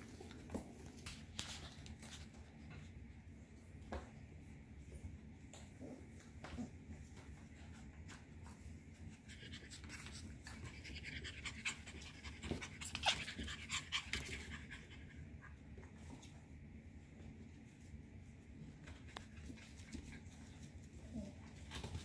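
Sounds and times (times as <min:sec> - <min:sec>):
puppies panting: 0:08.8 - 0:15.5.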